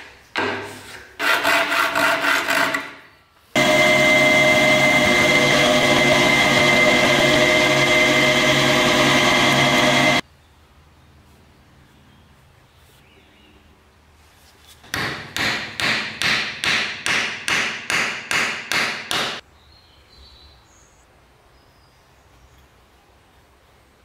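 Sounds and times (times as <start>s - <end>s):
hammer knocking wooden dowel: 14.9s - 19.4s.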